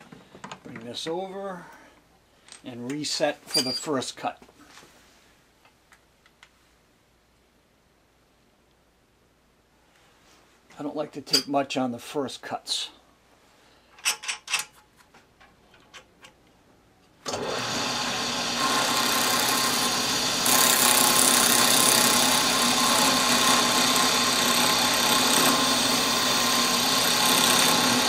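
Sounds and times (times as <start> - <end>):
cutter milling wood: 17.3 - 28.0
drill press motor humming: 17.3 - 28.0.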